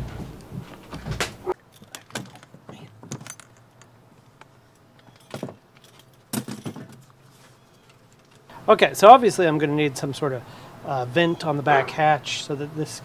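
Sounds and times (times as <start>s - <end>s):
rustling and knocking of handling: 0.0s - 8.5s.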